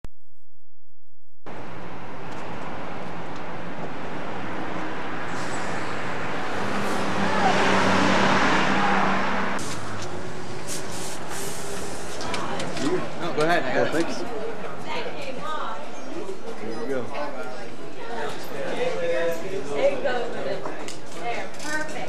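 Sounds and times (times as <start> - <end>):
vehicle passing: 1.5 - 13.3
street traffic: 1.5 - 22.0.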